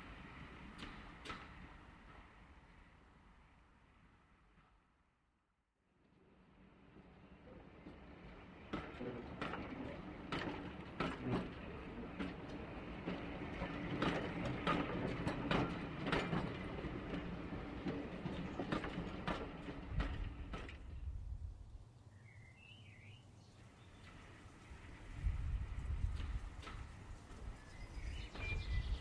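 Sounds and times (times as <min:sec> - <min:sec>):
model train wheels clicking: 0:24.0 - 0:27.6.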